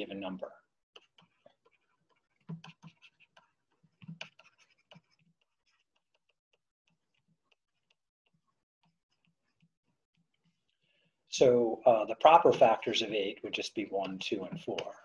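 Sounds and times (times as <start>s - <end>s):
stylus writing on pen tablet: 0.9s - 11.2s, 13.8s - 15.0s.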